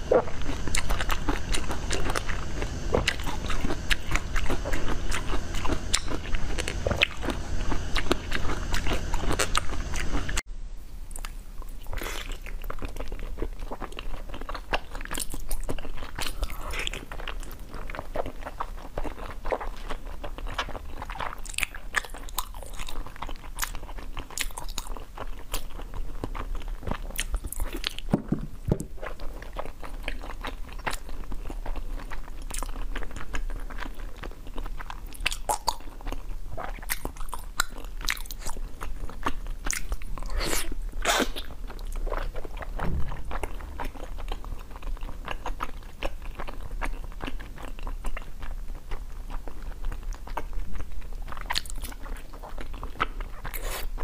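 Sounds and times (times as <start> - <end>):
close eating and slurping: 0.0 - 10.4, 36.5 - 45.7, 51.4 - 54.0
crisp crunching and chewing: 11.1 - 28.2, 28.9 - 54.0.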